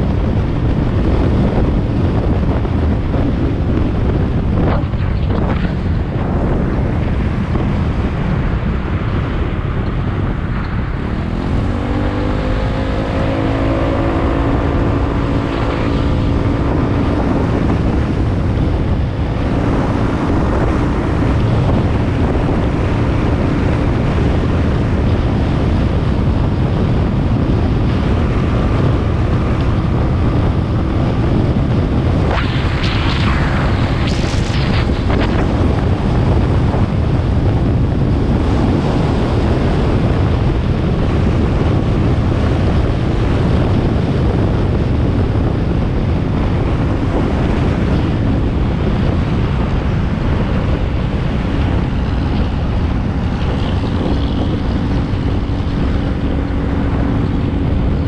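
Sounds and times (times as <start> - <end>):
wind buffeting microphone: 0.0 - 58.0
humming tone rising: 11.0 - 21.0.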